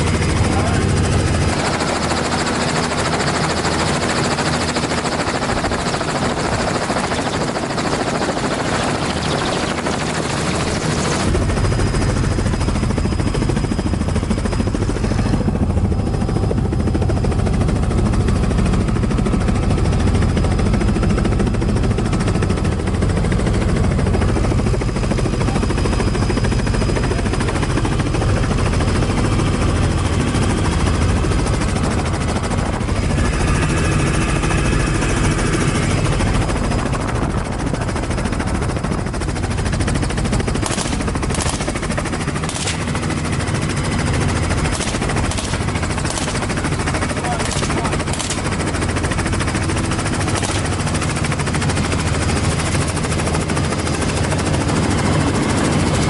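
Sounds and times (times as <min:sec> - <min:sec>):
helicopter rotor and engine drone: 0:00.0 - 0:56.0
rushing wind: 0:00.0 - 0:56.0.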